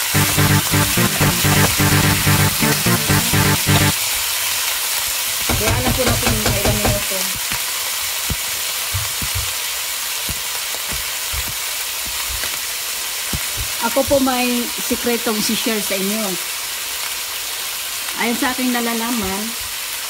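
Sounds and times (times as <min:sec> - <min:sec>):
background music: 0:00.0 - 0:04.0
chicken frying in oil: 0:00.0 - 0:20.0.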